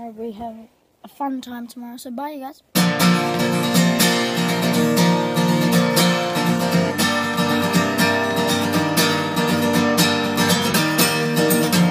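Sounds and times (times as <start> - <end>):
strummed acoustic guitar music: 2.7 - 11.9
steady beat: 2.8 - 11.9.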